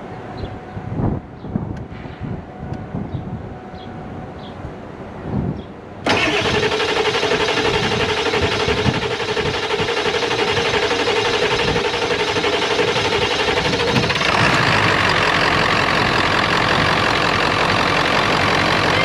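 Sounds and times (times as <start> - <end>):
diesel engine starting and running: 6.0 - 19.0.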